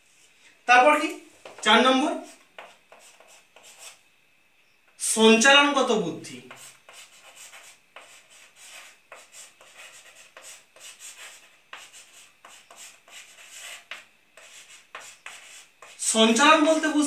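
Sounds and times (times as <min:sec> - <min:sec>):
light chalk taps: 0:01.4 - 0:01.7, 0:02.3 - 0:03.9, 0:06.5 - 0:16.0
chalk scratching on blackboard: 0:02.2 - 0:04.0, 0:06.5 - 0:16.3.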